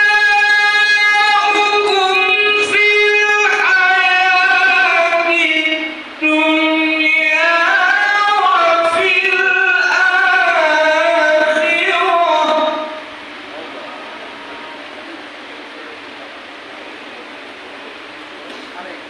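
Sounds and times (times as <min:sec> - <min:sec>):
person chanting melodically: 0:00.0 - 0:15.2.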